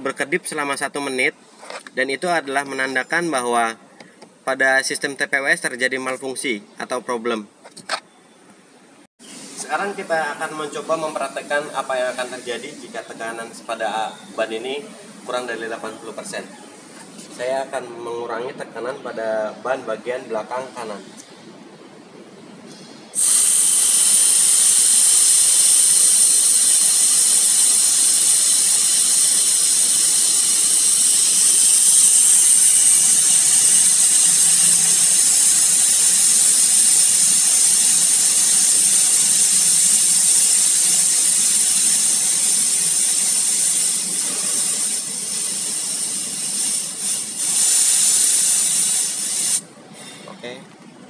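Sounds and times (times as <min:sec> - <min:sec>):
air hissing out of tyre valve: 0:10.6 - 0:12.8, 0:22.7 - 0:50.1.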